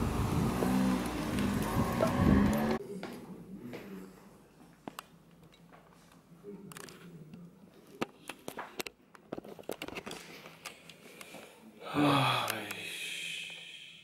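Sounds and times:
man sighing loudly: 11.8s - 13.9s.

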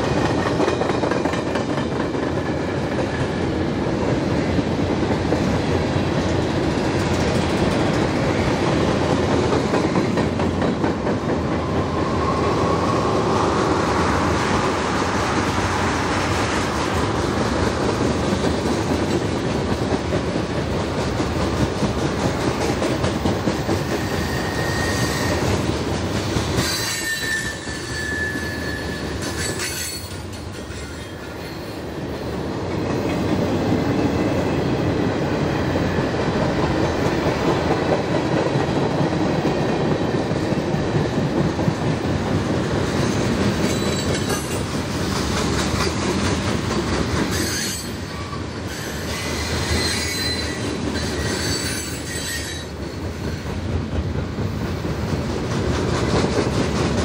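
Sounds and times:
high wheel squeal: 23.8s - 25.6s, 26.6s - 31.8s, 43.6s - 44.6s, 47.3s - 53.4s.

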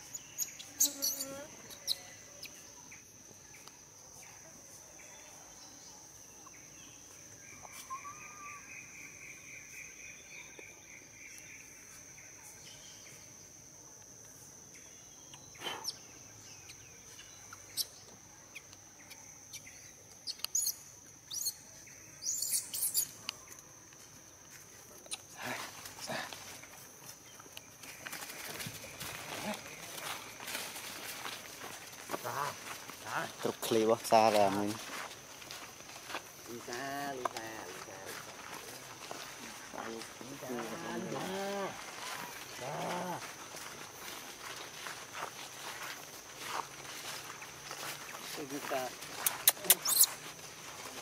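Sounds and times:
high insect drone: 0.0s - 51.0s
dry leaves rustling: 27.8s - 49.4s
footsteps in leaf litter: 27.9s - 49.4s.

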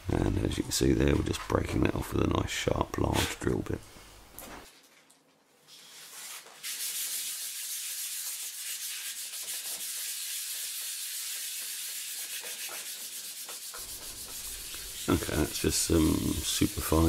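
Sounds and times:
sandpaper rubbing on metal: 6.0s - 17.0s.

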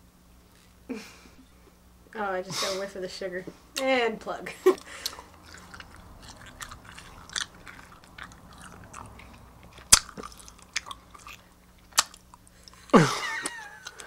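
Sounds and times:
sharp gum clicks: 4.8s - 12.9s
person chewing bubblegum: 4.8s - 14.0s.

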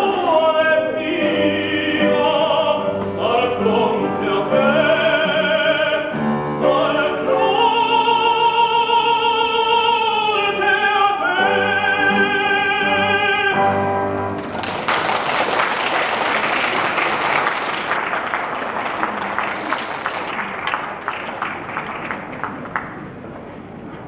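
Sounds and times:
man singing operatic style: 0.0s - 14.0s
piano: 0.0s - 24.0s
audience applauding: 14.3s - 23.4s.

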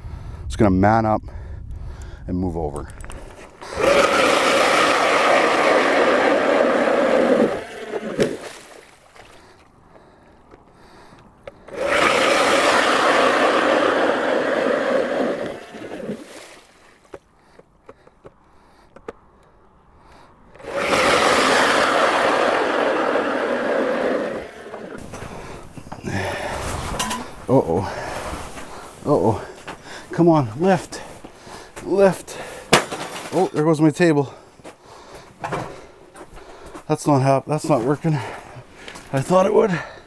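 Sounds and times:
ice auger motor whine: 3.6s - 8.4s, 11.7s - 16.2s, 20.6s - 25.3s.

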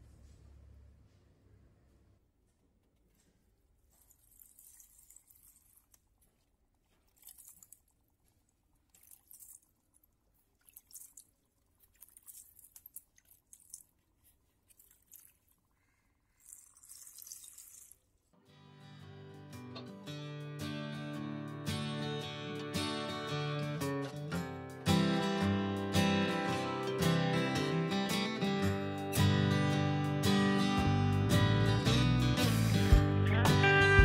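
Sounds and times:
music: 18.5s - 34.0s.

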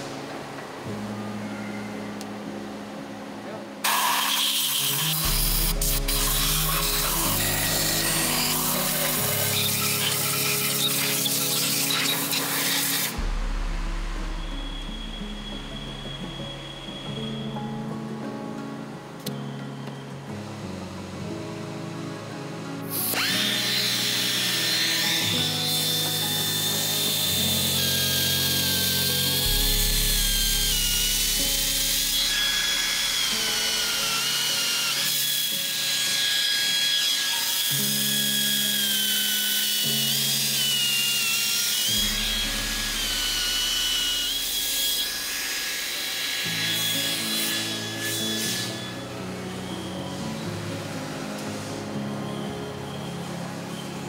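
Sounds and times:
background music: 0.0s - 54.0s
power tool whine machining metal: 3.8s - 13.2s, 22.9s - 54.0s.

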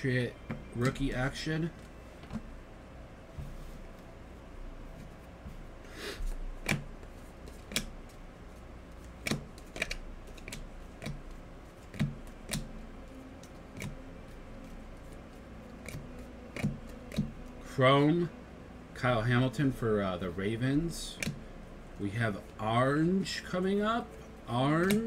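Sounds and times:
trading cards clicking and tapping: 6.2s - 8.2s, 8.9s - 17.6s, 20.8s - 21.5s, 24.1s - 25.0s.

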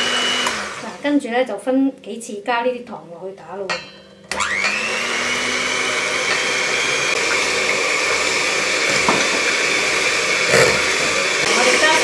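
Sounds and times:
electric hand mixer whirring: 0.0s - 1.1s, 4.3s - 12.0s.

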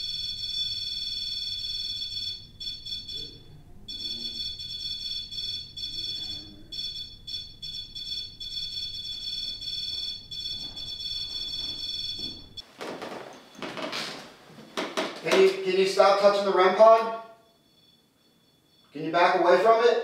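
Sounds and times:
high-pitched electronic alarm tone: 0.0s - 12.6s.

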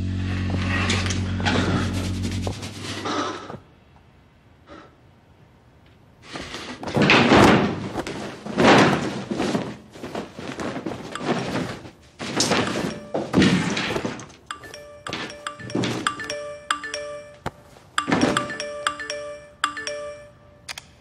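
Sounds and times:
soft music: 0.0s - 3.0s, 12.5s - 13.5s, 14.5s - 20.7s
clothing rustling and swishing: 6.4s - 14.4s.

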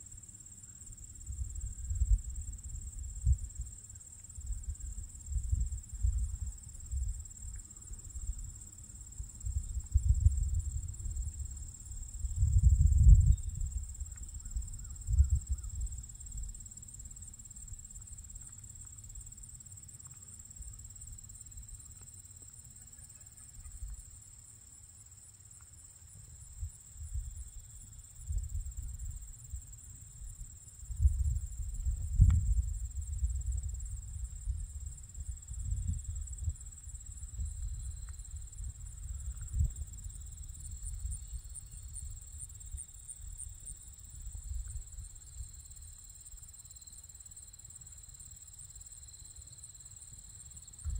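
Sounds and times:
insects trilling: 2.4s - 50.9s
wind buffeting microphone: 9.4s - 15.9s, 30.9s - 42.2s.

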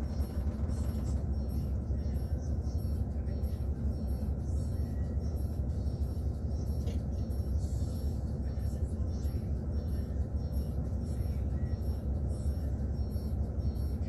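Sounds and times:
bus diesel engine idling: 0.0s - 14.0s.

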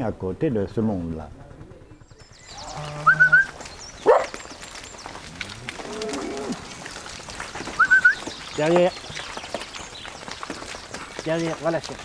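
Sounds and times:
bird chirps: 1.9s - 5.2s, 7.8s - 11.6s
cows lowing: 2.4s - 11.2s.

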